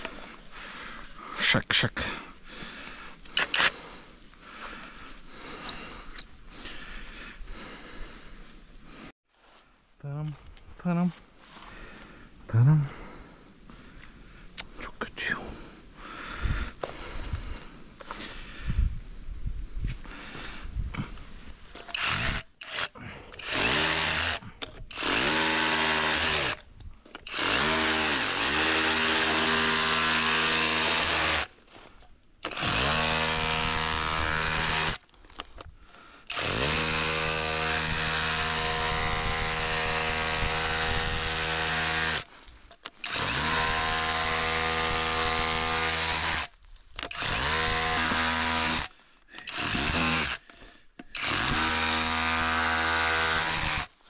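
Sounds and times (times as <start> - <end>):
electric power tool motor: 21.8 - 31.5, 32.4 - 35.0, 36.3 - 42.3, 43.0 - 54.0.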